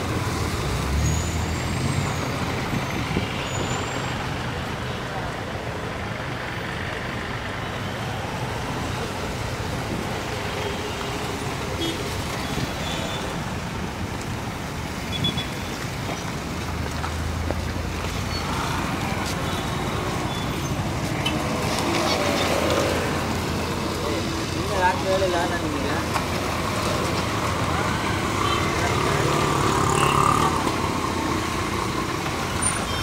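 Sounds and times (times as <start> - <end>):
city street traffic: 0.0 - 33.0.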